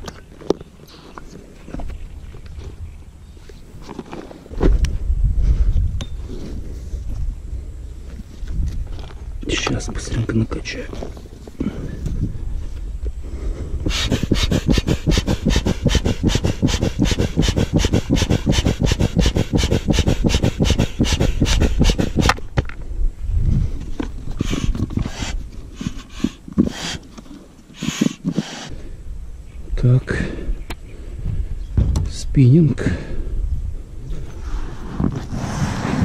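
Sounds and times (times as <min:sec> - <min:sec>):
foot pump puffing air: 0:13.4 - 0:22.5, 0:24.3 - 0:28.8
pump rustling and knocking: 0:13.9 - 0:22.8, 0:23.8 - 0:28.7, 0:31.8 - 0:32.2.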